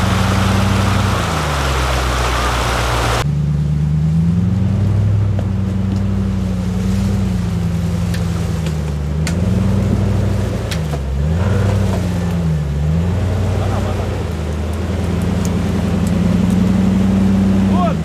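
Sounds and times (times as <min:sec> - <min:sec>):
engine pulling hard at low revs: 0:00.0 - 0:18.0
brush snapping: 0:08.0 - 0:10.0, 0:10.6 - 0:12.4, 0:14.2 - 0:16.8.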